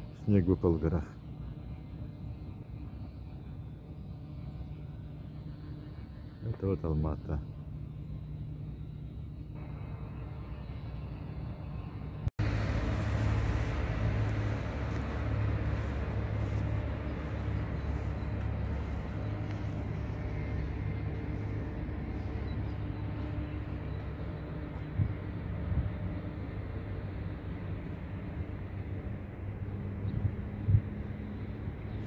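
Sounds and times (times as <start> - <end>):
city street rumble: 0.0 - 32.0.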